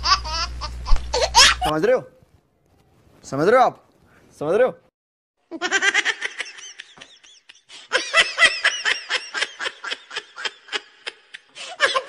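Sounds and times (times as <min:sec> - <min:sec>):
high-pitched laughter: 0:00.0 - 0:01.7, 0:05.5 - 0:12.0.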